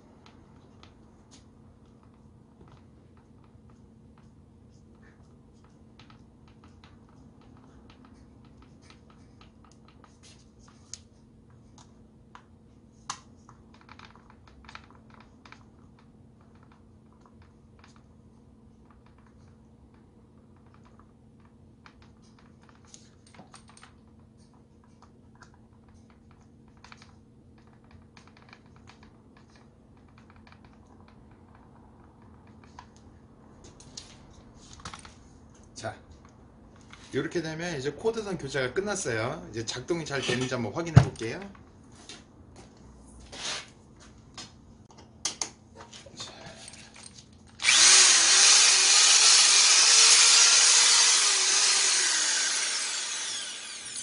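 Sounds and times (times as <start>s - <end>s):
screwdriver clicks and taps: 45.0s - 45.6s.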